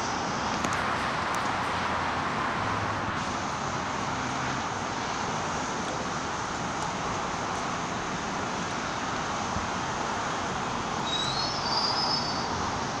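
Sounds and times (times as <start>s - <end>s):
subway train wheels rumbling: 10.4s - 13.0s
high squeal of train: 11.0s - 13.0s.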